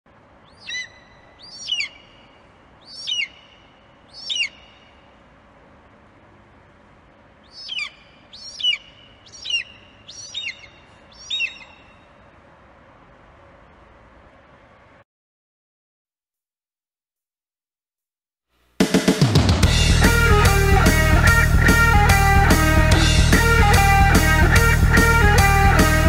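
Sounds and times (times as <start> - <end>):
bird of prey screeching: 0.5 - 2.1, 2.8 - 3.4, 4.2 - 4.7, 7.5 - 11.8.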